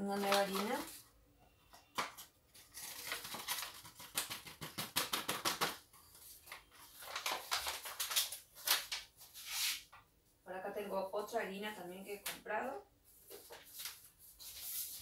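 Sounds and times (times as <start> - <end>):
paper bag crinkling: 0.0 - 1.0, 2.5 - 4.5, 6.4 - 9.1.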